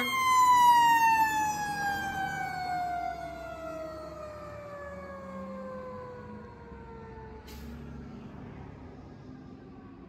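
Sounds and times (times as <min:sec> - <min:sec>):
mechanical siren winding down: 0:00.0 - 0:07.4.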